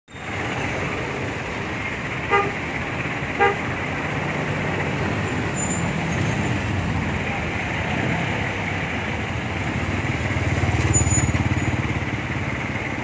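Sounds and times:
street traffic: 0.0 - 13.0
vehicle horn toots: 2.3 - 2.6, 3.4 - 3.7.

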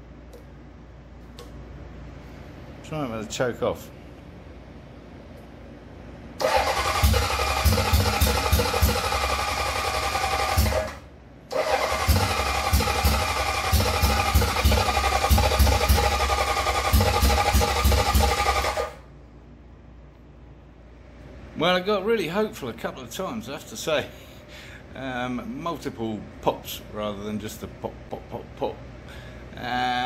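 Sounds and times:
engine cranking: 6.4 - 19.0.

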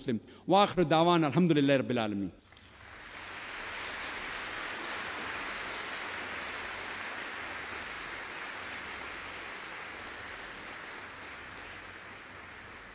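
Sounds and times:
audience applauding: 2.6 - 12.9.

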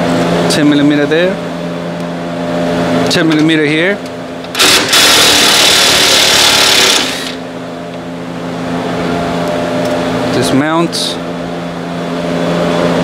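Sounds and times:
steady background hum: 0.0 - 13.0
power tool running: 4.5 - 7.5.

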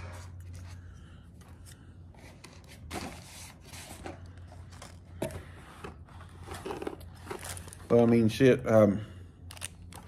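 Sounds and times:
packaging rustling and crinkling: 6.5 - 8.3.

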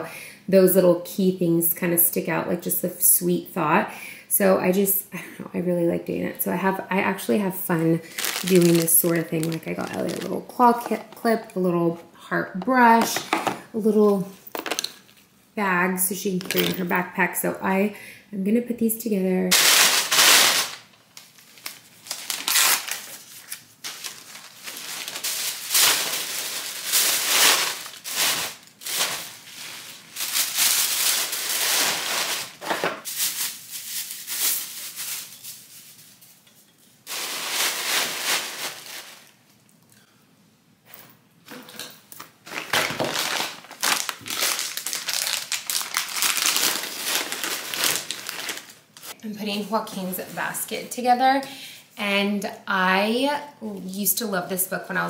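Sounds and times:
paper and plastic crinkling: 8.0 - 11.4, 19.5 - 36.2, 37.1 - 39.7, 42.4 - 49.2.

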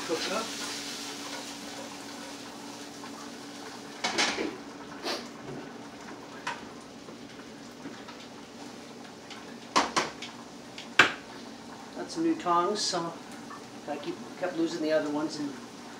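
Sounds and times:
metal pots and pans clattering: 4.0 - 4.6.

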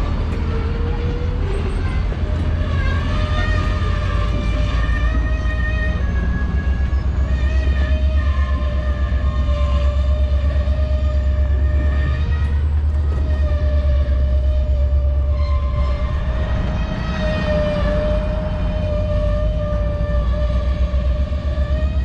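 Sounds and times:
high engine whine: 0.0 - 22.0
locomotive diesel engine throbbing: 0.0 - 22.0.

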